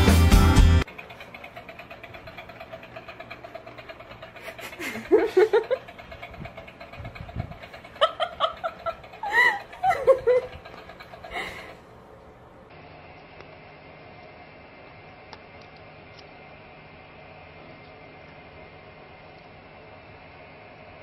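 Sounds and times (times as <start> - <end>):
toy motor buzzing with pulsing rattle: 0.8 - 12.1
person laughing: 4.4 - 6.0, 7.6 - 11.9.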